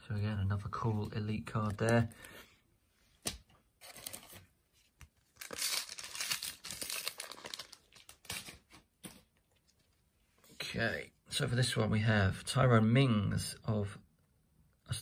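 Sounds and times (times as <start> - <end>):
wrapper crinkling: 5.3 - 8.8
card packet tearing: 5.4 - 8.8.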